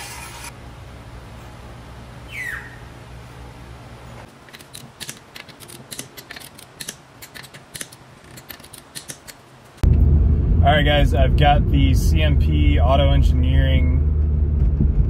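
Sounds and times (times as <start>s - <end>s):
low steady hum: 0.0s - 5.0s, 9.5s - 15.0s
wrench ratcheting clicks: 4.5s - 9.4s.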